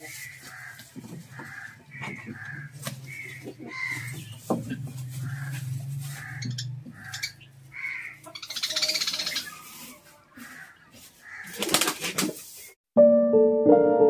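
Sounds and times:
rapid bird chattering: 0.0 - 9.8.

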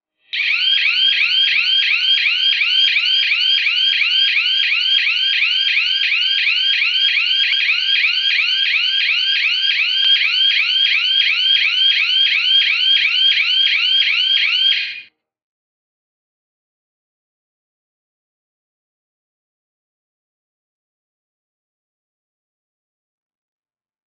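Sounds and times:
electronic alarm siren whooping: 0.3 - 15.1.

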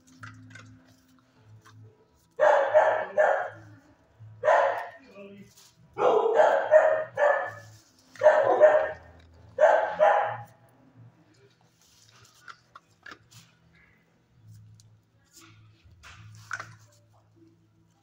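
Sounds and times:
dog barking: 2.4 - 3.7, 4.4 - 5.0, 5.9 - 10.6.

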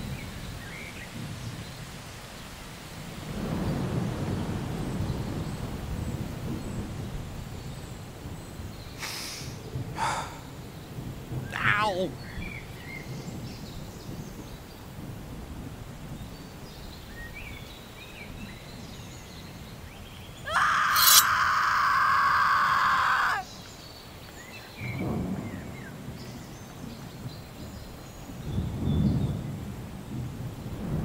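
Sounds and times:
birds chirping: 20.3 - 23.9.

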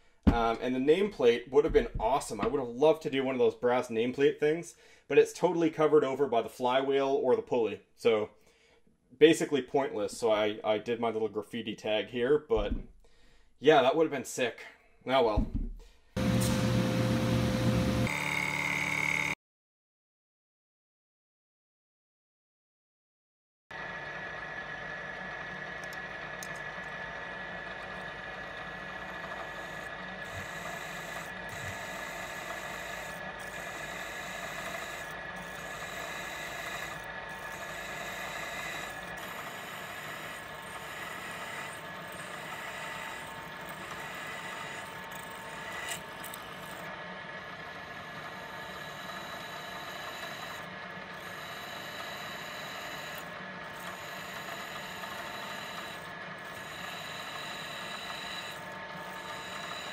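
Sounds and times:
milling machine whining: 16.2 - 19.4, 23.7 - 59.9
drill bit cutting steel: 27.7 - 46.9, 47.9 - 59.9.

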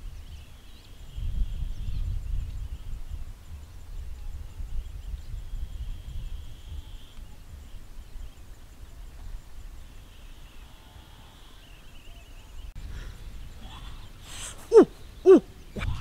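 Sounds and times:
wind rumble on microphone: 0.0 - 16.0
high wavering animal call: 13.6 - 16.0.

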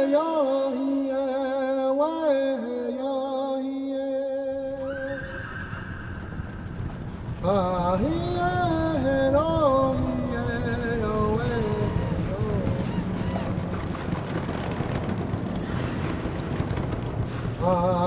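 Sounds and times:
rushing rumbling noise: 4.5 - 18.0
horse whinnying: 4.8 - 7.2.

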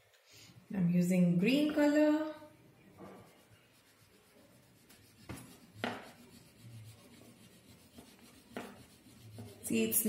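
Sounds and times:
crayon scratching on paper: 3.0 - 10.0.

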